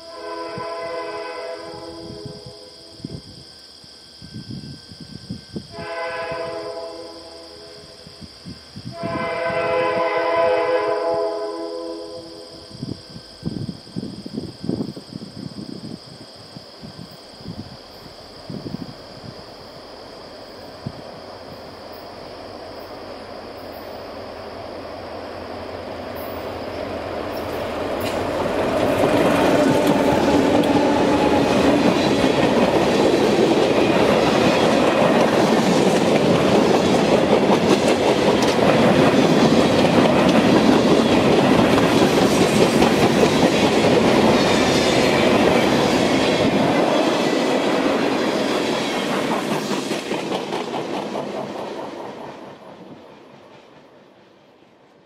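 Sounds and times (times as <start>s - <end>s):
diesel locomotive engine: 2.0s - 55.0s
train wheels clickety-clack: 27.3s - 54.8s.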